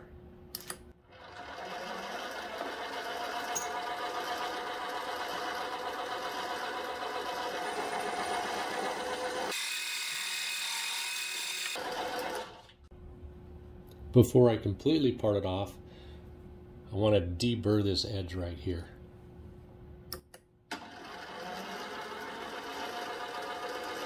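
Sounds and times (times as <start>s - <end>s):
metal lathe whine and cutting: 1.5s - 11.8s.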